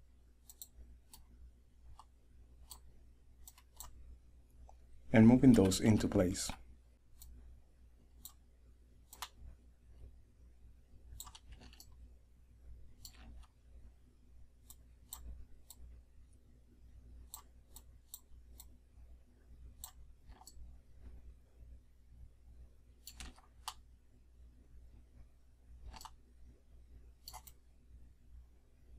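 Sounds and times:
low steady hum: 0.0s - 28.9s
computer mouse clicks: 0.4s - 1.3s, 1.9s - 4.0s, 5.4s - 5.9s, 7.2s - 7.4s, 8.2s - 8.4s, 9.0s - 9.4s, 11.1s - 12.0s, 12.9s - 13.6s, 14.6s - 15.9s, 17.2s - 18.8s, 19.8s - 20.7s, 23.0s - 23.9s, 25.8s - 26.2s, 27.2s - 27.6s.

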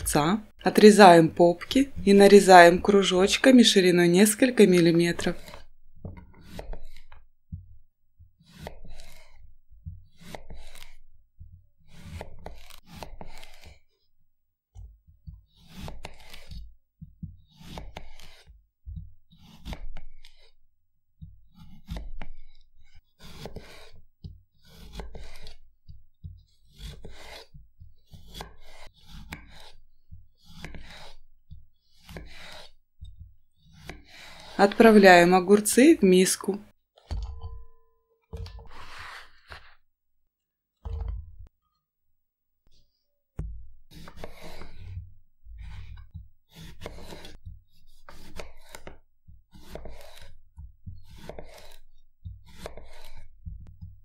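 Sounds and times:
knife slicing on wooden board: 5.3s - 7.2s, 8.4s - 9.4s, 10.0s - 11.0s, 11.9s - 13.8s, 15.5s - 16.7s, 17.4s - 18.6s, 19.3s - 20.6s, 21.5s - 22.5s, 23.2s - 25.6s, 26.6s - 34.8s, 38.6s - 39.8s, 43.9s - 53.8s.

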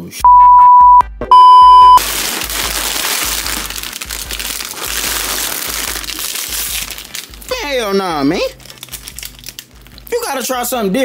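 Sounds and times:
bleep tone: 0.2s - 2.0s.

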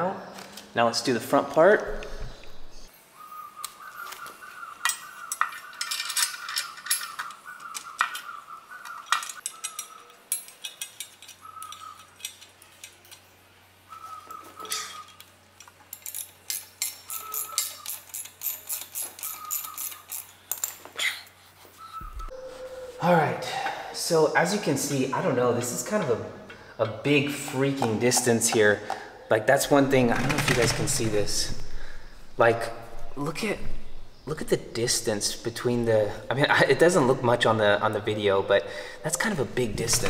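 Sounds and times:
faint high tone: 22.1s - 23.6s.

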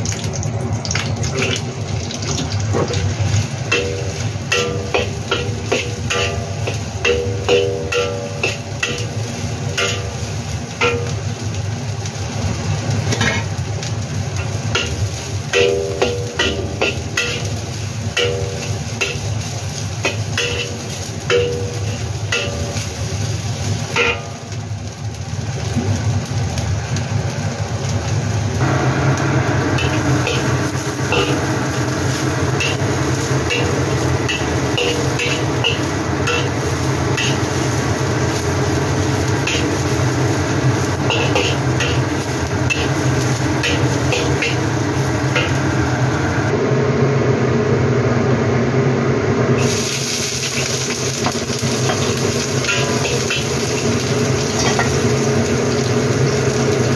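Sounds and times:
frying sizzle: 0.0s - 47.5s, 49.1s - 56.9s
metal spatula scraping a wok: 3.7s - 11.2s, 13.1s - 13.6s, 14.8s - 17.6s, 29.8s - 45.7s, 50.4s - 55.7s.

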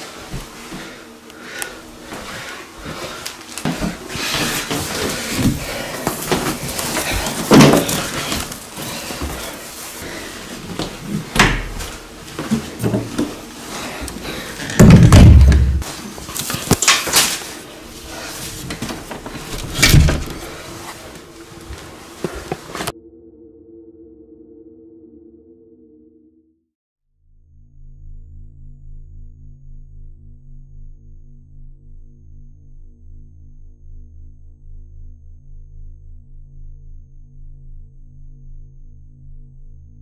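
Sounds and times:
heavy door slam thud: 11.3s - 11.8s, 14.8s - 15.8s, 19.6s - 20.5s
knocks bumps and rattles: 14.7s - 15.9s, 18.8s - 20.6s.

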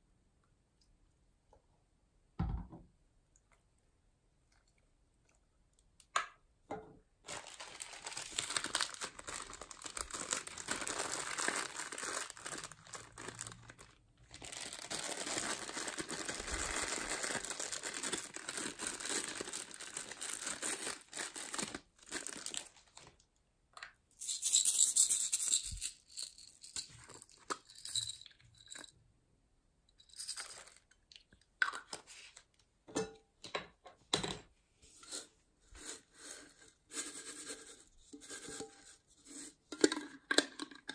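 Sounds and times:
plastic packets crinkling: 7.2s - 23.2s.

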